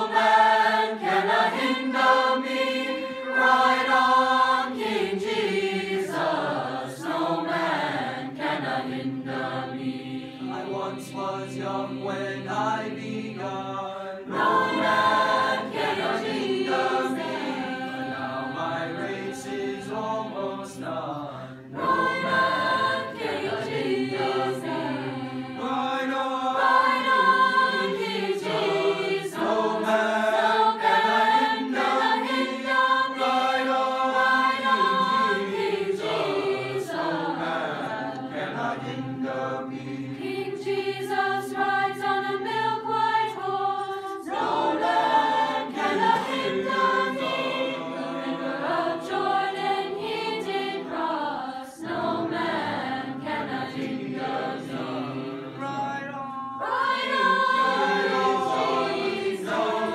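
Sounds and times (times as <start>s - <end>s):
choir singing in parts: 0.0s - 59.9s.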